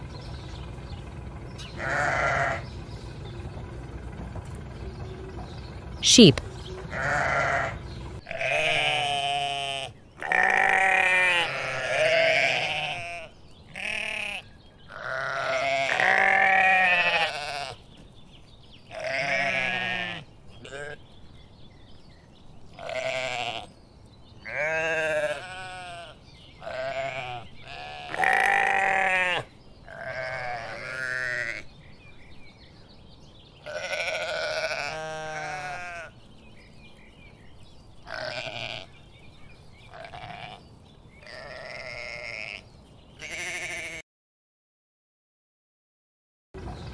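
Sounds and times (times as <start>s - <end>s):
sheep bleating: 1.6s - 2.7s, 6.9s - 17.8s, 18.9s - 21.0s, 22.8s - 23.8s, 24.4s - 31.7s, 33.6s - 36.2s, 38.0s - 39.0s, 39.9s - 44.0s.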